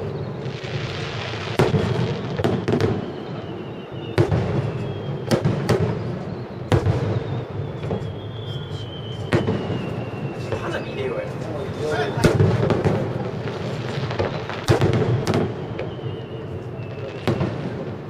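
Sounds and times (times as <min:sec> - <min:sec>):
firework shells booming: 0:00.0 - 0:18.0.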